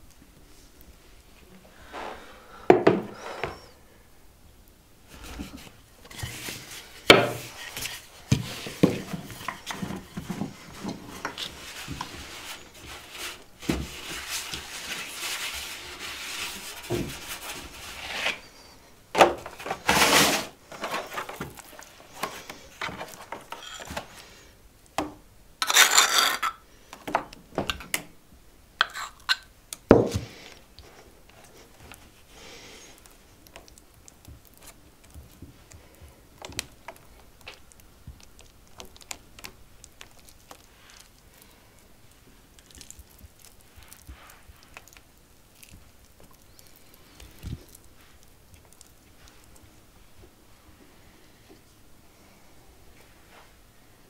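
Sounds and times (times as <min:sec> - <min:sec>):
loud scraping noises: 0:19.6 - 0:21.4.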